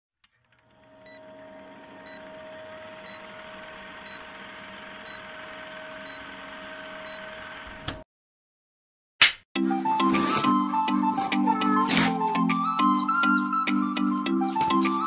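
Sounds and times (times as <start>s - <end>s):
film projector clatter and crackle: 0.2s - 8.0s.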